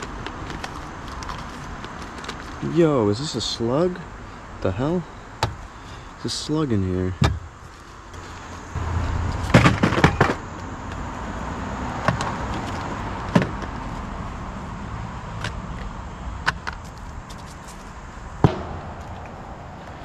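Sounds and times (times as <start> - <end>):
knocks and clatter: 9.4 - 10.4.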